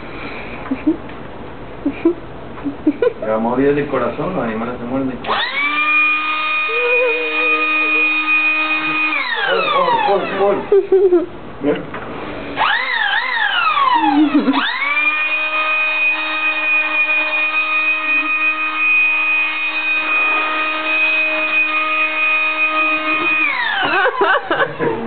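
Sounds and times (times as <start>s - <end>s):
electric air pump whining: 5.0s - 10.9s, 12.1s - 25.0s.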